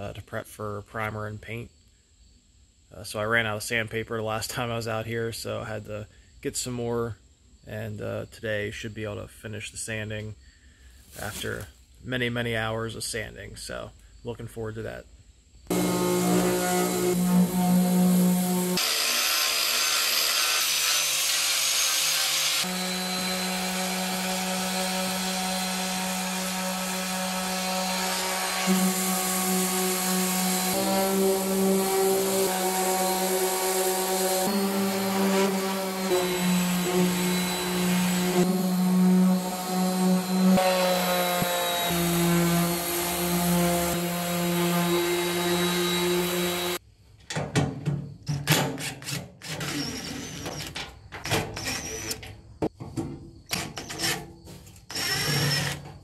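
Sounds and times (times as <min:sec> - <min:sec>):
power sanders whining: 0:15.7 - 0:46.8.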